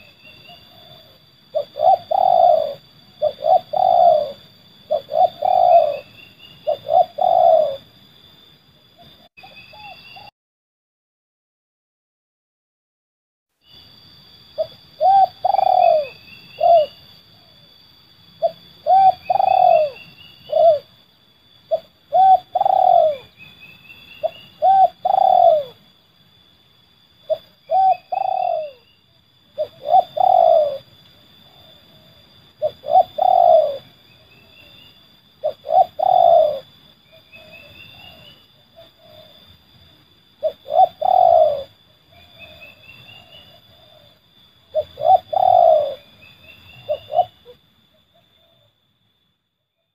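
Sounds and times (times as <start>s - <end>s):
dove cooing: 0.0s - 8.0s, 9.0s - 10.3s, 14.6s - 17.7s, 18.4s - 21.0s, 21.6s - 25.9s, 27.2s - 34.8s, 35.4s - 48.8s.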